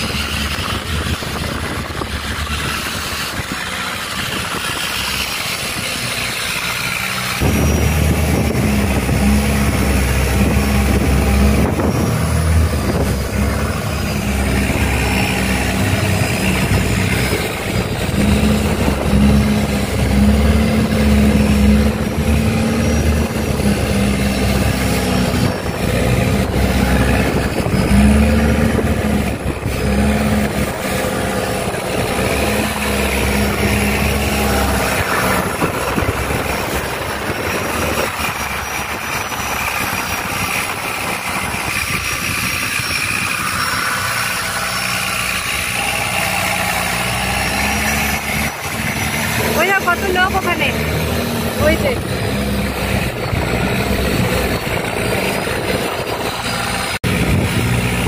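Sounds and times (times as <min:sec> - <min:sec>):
wind noise: 0:00.0 - 0:50.2, 0:50.8 - 0:58.0
boat engine droning: 0:00.0 - 0:58.0
water rushing: 0:00.0 - 0:58.0.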